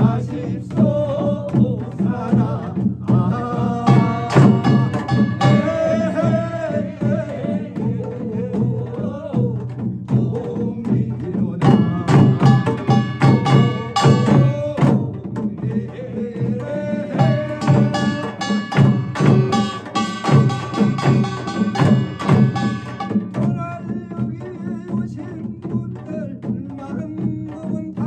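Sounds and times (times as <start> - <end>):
man chanting: 0.0 - 28.0
hourglass drums beating: 3.4 - 7.3, 11.6 - 15.1, 16.7 - 23.7.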